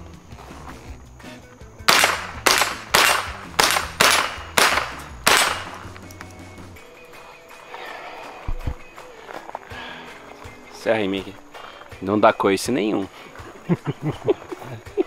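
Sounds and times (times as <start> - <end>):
rifle shots: 1.9 - 5.9.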